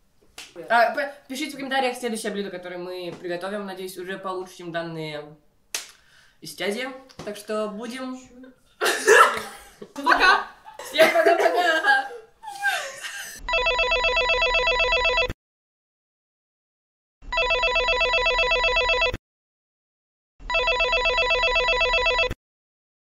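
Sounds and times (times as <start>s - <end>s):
telephone ringing: 13.4s - 15.3s, 17.3s - 19.2s, 20.4s - 22.4s.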